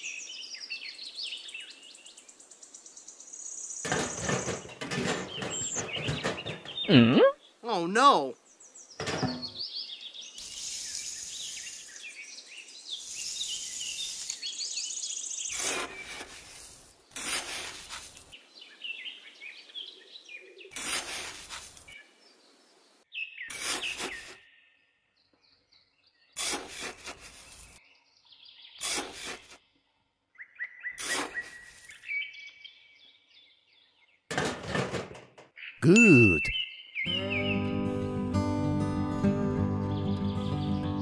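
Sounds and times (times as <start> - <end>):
birds chirping: 0.0 - 34.3, 34.9 - 38.0, 39.6 - 41.0
trowel scraping damp sand: 13.0 - 14.6, 15.4 - 18.4, 20.7 - 22.0, 23.5 - 24.4, 26.4 - 27.8, 28.8 - 29.6, 31.0 - 32.1.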